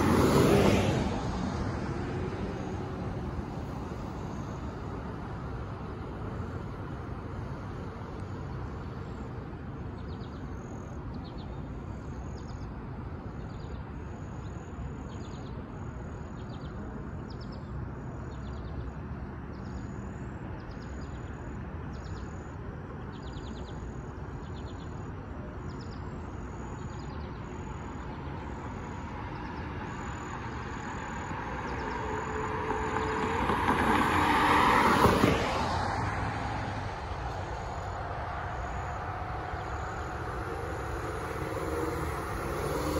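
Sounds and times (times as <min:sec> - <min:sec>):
vehicle passing close: 0:00.0 - 0:07.2, 0:30.0 - 0:42.9
low traffic rumble: 0:00.0 - 0:42.9.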